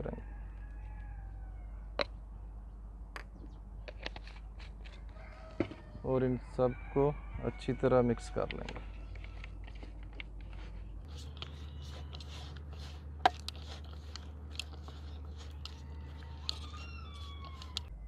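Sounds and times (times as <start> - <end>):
meat squelching in marinade: 10.6 - 17.9.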